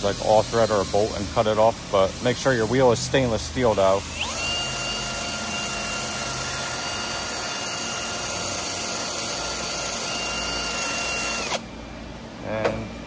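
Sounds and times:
drill motor whine: 3.7s - 11.7s.

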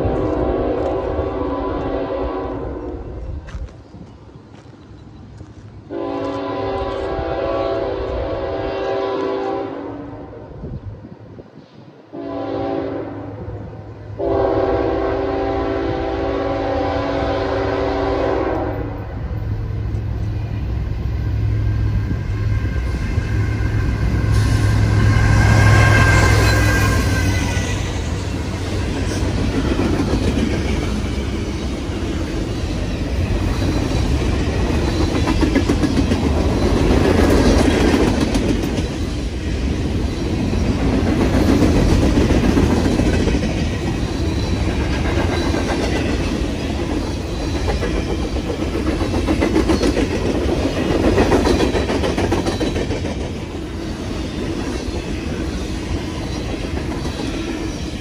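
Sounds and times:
freight train wheels rumbling on rail: 0.0s - 58.0s
train clattering: 14.2s - 58.0s.

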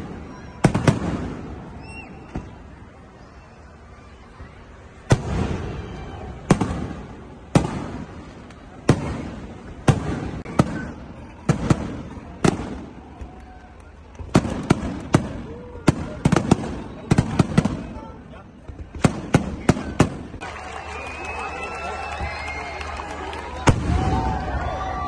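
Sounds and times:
firework bangs echoing: 0.0s - 2.8s, 5.0s - 13.4s, 14.0s - 18.0s, 18.6s - 20.4s, 23.6s - 24.7s.

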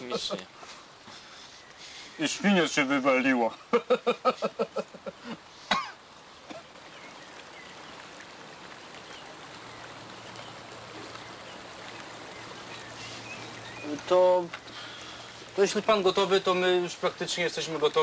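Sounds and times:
flowing water rushing: 0.0s - 18.0s
man laughing: 3.6s - 5.4s.

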